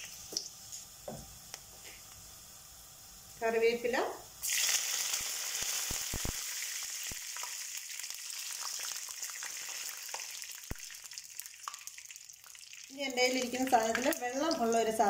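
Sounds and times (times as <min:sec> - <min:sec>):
leaves sizzling in hot oil: 0:00.0 - 0:15.0
oil pops and crackles: 0:04.4 - 0:14.2.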